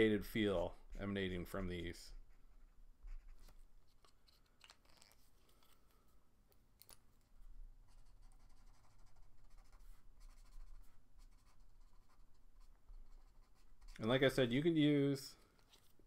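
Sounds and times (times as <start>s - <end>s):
marker scratching on paper: 0.8s - 5.2s, 7.9s - 14.2s
soft marker clicks: 6.5s - 7.2s.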